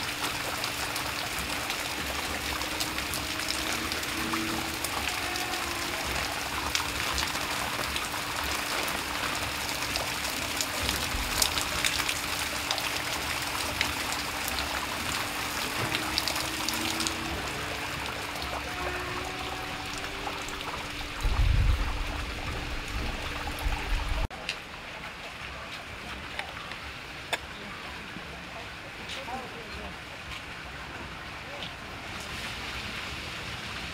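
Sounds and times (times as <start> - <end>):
fountain water splashing: 0.0 - 33.9
low rumble: 19.1 - 24.3.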